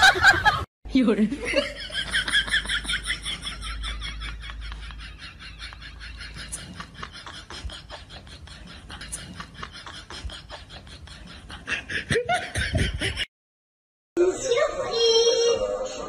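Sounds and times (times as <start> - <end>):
person laughing: 1.4 - 13.3.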